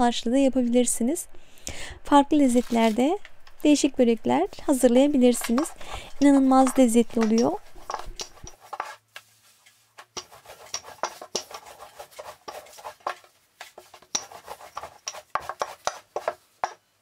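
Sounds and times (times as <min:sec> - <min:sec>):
rolling pin rolling dough on board: 0:04.7 - 0:09.3, 0:10.0 - 0:16.8.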